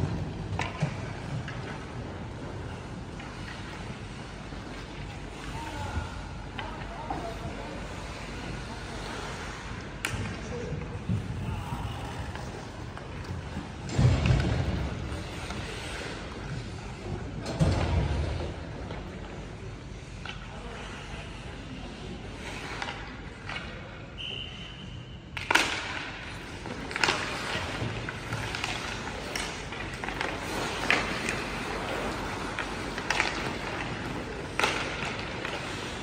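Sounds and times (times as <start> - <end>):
hockey sticks and puck cracking: 0.0 - 11.4, 25.3 - 36.0
skate blades scraping ice: 14.6 - 17.1, 25.4 - 36.0.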